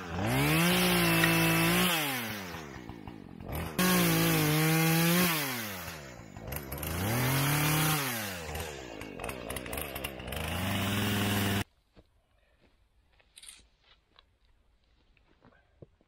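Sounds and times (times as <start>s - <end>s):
chainsaw engine revving: 0.0s - 11.7s.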